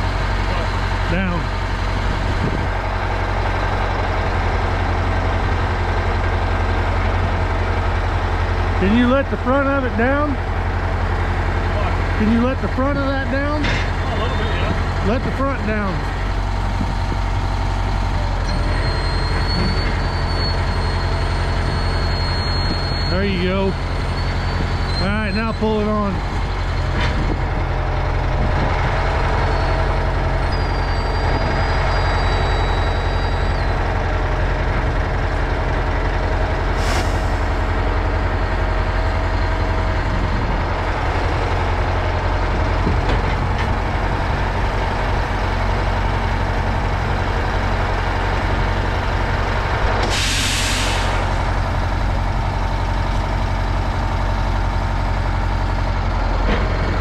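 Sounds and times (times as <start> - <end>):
truck diesel engine running: 0.0 - 57.0
air hiss: 36.8 - 37.5, 50.0 - 51.2.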